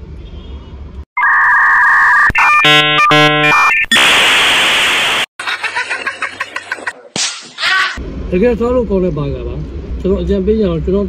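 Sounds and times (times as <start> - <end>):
two-note electronic beep: 1.7 - 3.8
buzzy alarm tone: 2.4 - 4.1.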